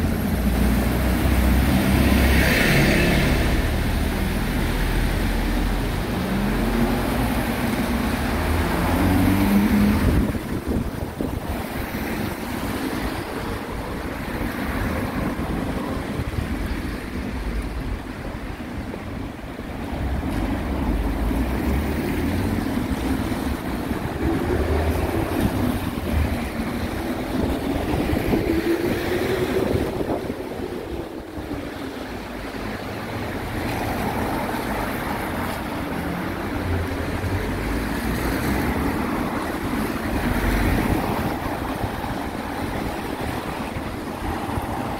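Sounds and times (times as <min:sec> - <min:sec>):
car engine passing by: 0:00.0 - 0:17.4
wind rumble on microphone: 0:00.0 - 0:44.9.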